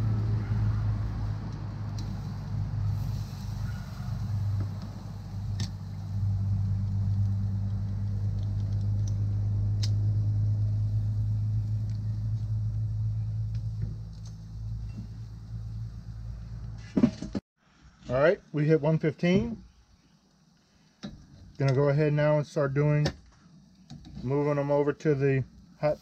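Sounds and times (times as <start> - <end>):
low engine rumble: 0.0 - 17.4.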